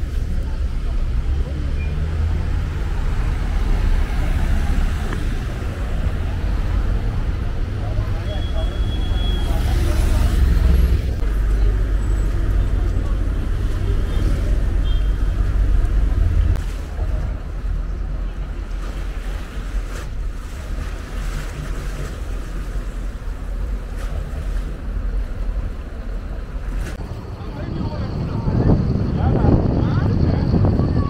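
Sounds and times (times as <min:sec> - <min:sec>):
low rumbling noise: 0:00.0 - 0:31.0
faint voices: 0:27.0 - 0:31.0.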